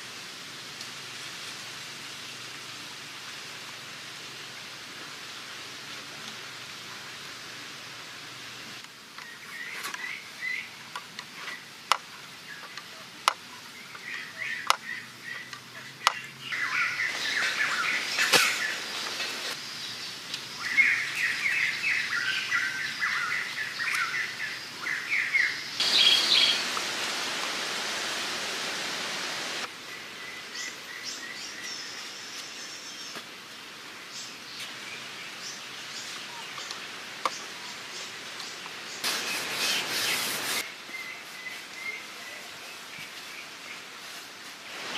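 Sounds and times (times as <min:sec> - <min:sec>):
background hiss: 0:00.0 - 0:44.9
birds chirping: 0:09.2 - 0:44.0.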